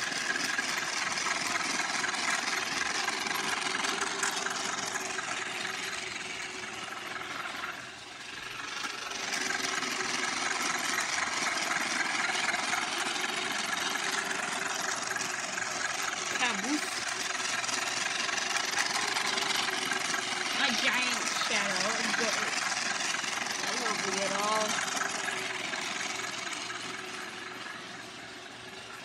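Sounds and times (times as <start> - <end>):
toy train motor whirring: 0.0 - 29.0.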